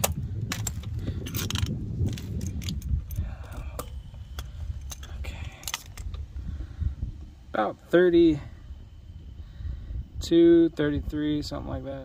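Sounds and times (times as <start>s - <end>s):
metallic clicks and rattles: 0.0s - 6.2s.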